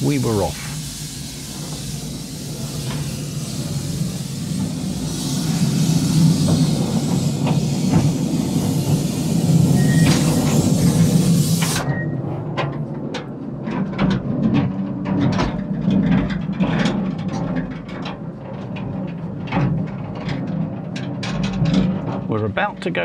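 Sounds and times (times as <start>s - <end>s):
steam locomotive hissing: 0.0s - 12.0s
low rumble of train carriage: 0.0s - 23.0s
wheels clacking on track: 0.0s - 23.0s.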